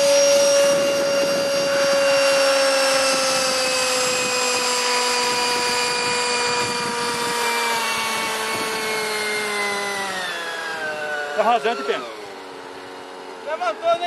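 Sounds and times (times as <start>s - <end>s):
model plane motors whining: 0.0s - 14.0s.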